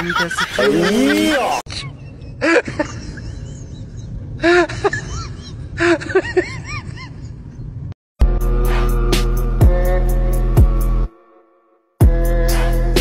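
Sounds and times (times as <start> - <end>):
loud music with a steady beat: 8.2 - 11.1, 12.0 - 13.0.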